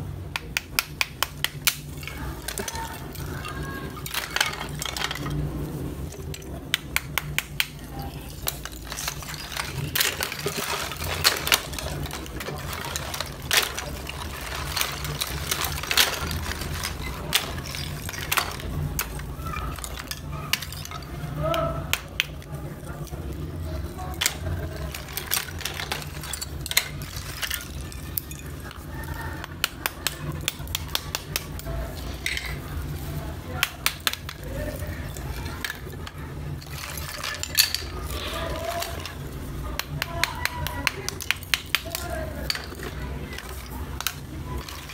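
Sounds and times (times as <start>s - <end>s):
clay slabs clicking together: 0.3s - 2.9s, 6.7s - 7.9s.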